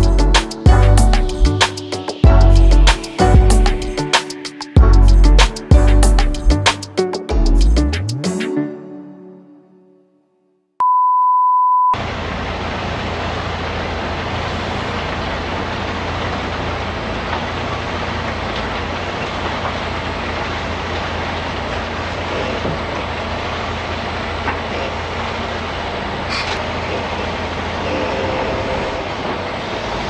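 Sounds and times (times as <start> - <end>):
truck diesel engine hum: 0.0 - 8.5, 12.0 - 30.0
single-pitch beep: 10.8 - 12.0
wind and road noise: 12.0 - 27.9.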